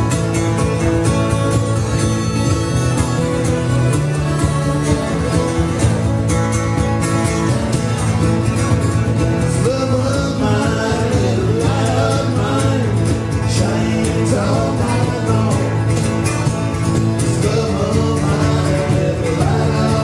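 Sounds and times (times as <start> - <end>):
acoustic guitars strumming: 0.0 - 20.0
man singing: 9.4 - 16.2, 17.2 - 20.0.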